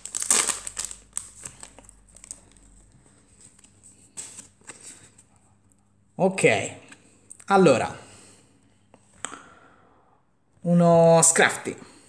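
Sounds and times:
wrapper crinkling: 0.0 - 2.8
cards rustling: 0.0 - 5.3.

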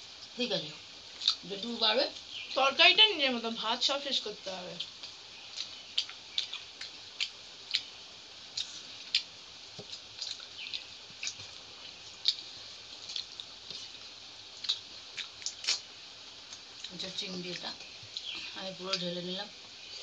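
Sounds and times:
wet chewing smacks: 1.1 - 1.4, 4.8 - 7.9, 8.5 - 19.1.

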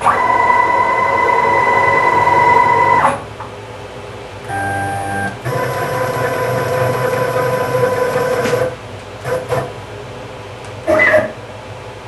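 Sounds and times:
stepper motors whining: 0.0 - 3.3, 4.4 - 9.7.

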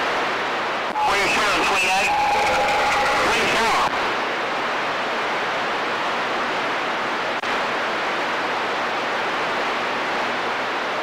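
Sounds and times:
radio static hiss: 0.0 - 4.2.

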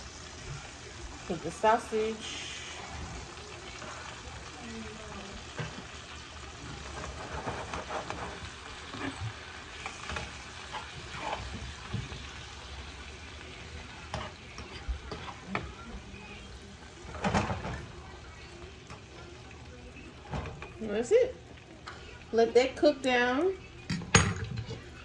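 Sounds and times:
food sizzling in a skillet: 0.0 - 25.0
utensils clinking and scraping pan: 5.4 - 12.4, 13.2 - 16.2, 16.9 - 18.1, 20.2 - 25.0.

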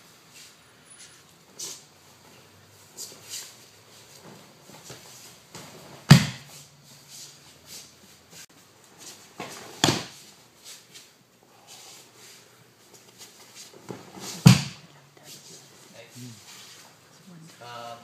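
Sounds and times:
body thumping onto mat: 5.6 - 6.5, 14.0 - 14.8.

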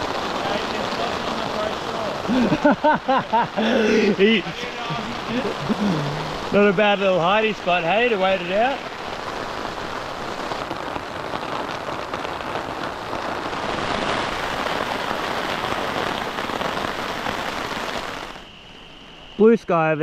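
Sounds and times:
heavy rain on a tarp: 0.0 - 19.5.

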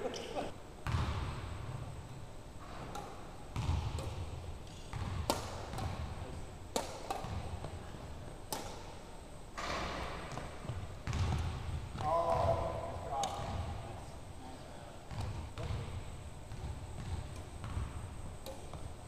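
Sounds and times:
rackets smacking shuttlecock: 2.8 - 7.7, 8.3 - 10.7, 17.0 - 17.7, 18.4 - 19.0.

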